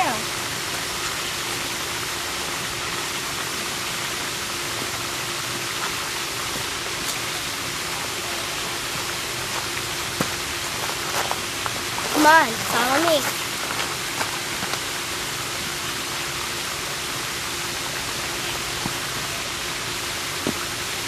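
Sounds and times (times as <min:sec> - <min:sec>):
steady rushing noise: 0:07.9 - 0:15.7.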